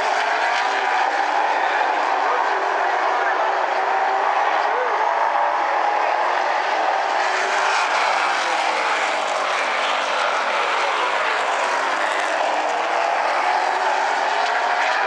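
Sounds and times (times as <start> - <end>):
race car engines roaring: 0.0 - 15.0.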